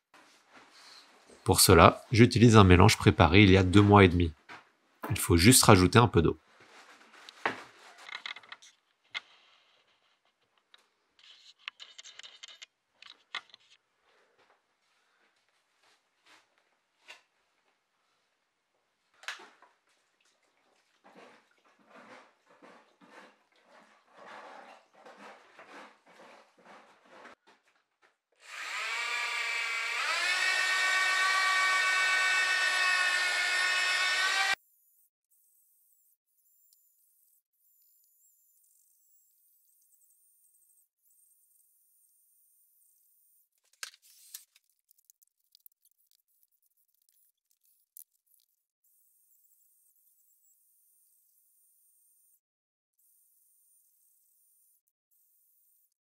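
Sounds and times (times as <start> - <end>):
stick scraping plaster mix: 21.0 - 27.4, 43.5 - 48.8
electric drill mixer whining: 28.4 - 34.6
small clicks: 43.6 - 48.7.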